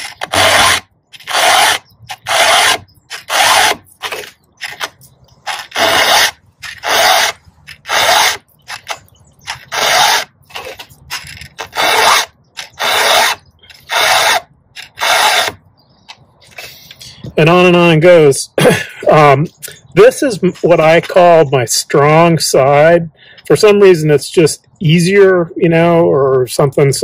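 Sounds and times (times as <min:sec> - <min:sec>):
file rasping on chainsaw chain: 0:00.0 - 0:15.6.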